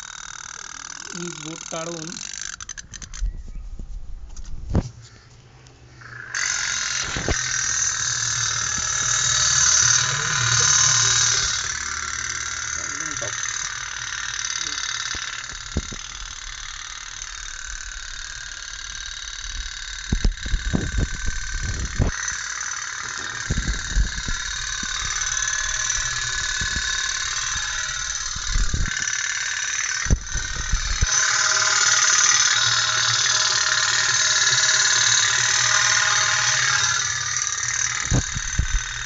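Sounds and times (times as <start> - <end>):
toy steam boat buzzing putter: 0.0 - 3.3, 5.9 - 39.0.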